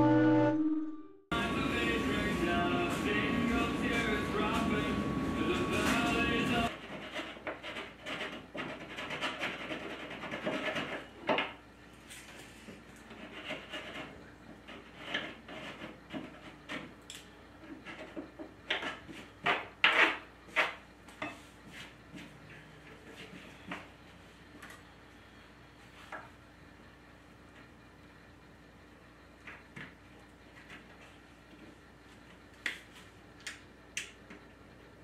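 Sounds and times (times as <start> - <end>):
scraping on wooden tabletop: 12.5 - 16.9.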